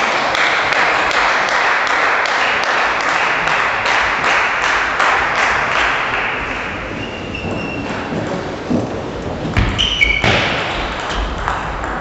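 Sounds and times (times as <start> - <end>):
crowd clapping in unison: 0.0 - 7.1.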